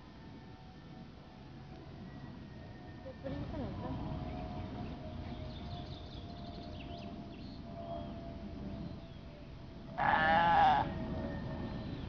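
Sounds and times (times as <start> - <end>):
low background noise: 0.0 - 12.0
farm animal bleating: 10.0 - 11.0.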